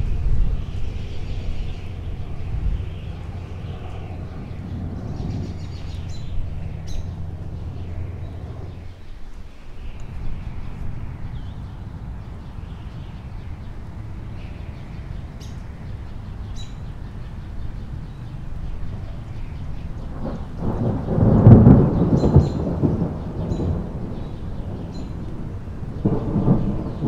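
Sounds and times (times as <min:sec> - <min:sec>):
thunder rumbling: 0:00.0 - 0:09.2, 0:17.4 - 0:27.0.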